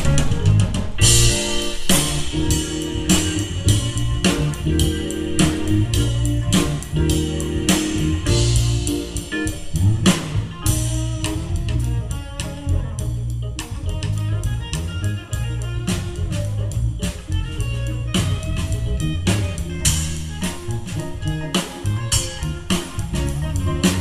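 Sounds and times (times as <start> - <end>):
drum kit steady beat: 0.0 - 24.0
electric bass: 0.0 - 24.0
electric guitar: 0.0 - 24.0
keyboards: 0.0 - 24.0.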